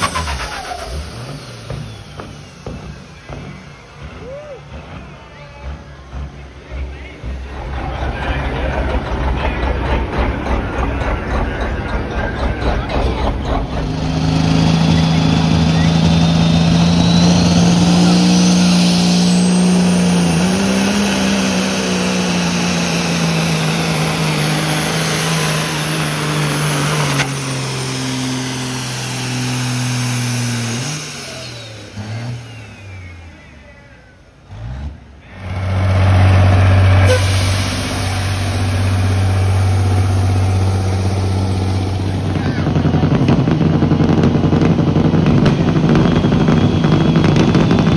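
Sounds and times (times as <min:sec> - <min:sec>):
diesel truck engine at full throttle: 0:00.0 - 0:47.9.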